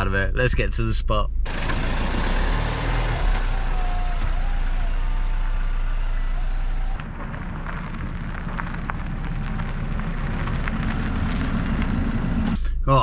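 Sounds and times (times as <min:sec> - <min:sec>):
car engine running: 0:01.2 - 0:13.0
tyres crackling on leaves and grit: 0:01.5 - 0:12.5.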